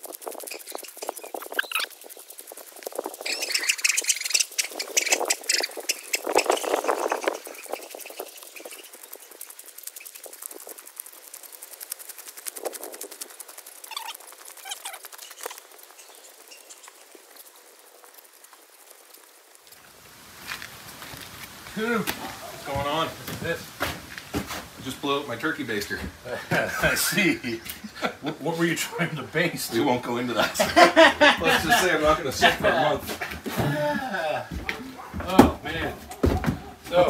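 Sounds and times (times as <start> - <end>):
footsteps crunching on gravel: 19.7 - 27.0, 31.5 - 37.0.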